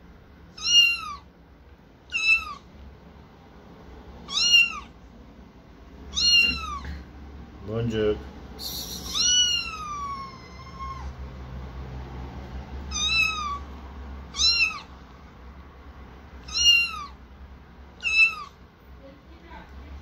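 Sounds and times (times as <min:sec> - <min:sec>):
kitten meowing: 0:00.5 - 0:01.3, 0:02.1 - 0:02.7, 0:04.3 - 0:05.0, 0:06.1 - 0:07.1, 0:08.7 - 0:11.2, 0:12.9 - 0:15.0, 0:16.4 - 0:17.2, 0:18.0 - 0:18.6.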